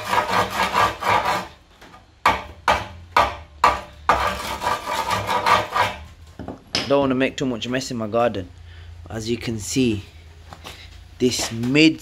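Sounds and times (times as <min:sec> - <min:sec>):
hammer scraping metal pipe: 0:00.0 - 0:01.6, 0:02.3 - 0:06.1.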